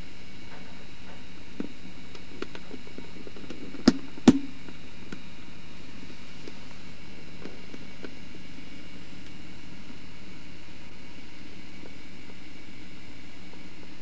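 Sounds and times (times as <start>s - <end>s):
steady background hiss: 0.0s - 14.0s.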